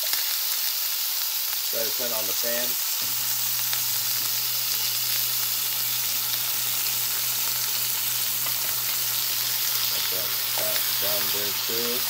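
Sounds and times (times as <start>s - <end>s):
meat sizzling in a pan: 0.0s - 12.0s
range hood fan hum: 3.0s - 12.0s.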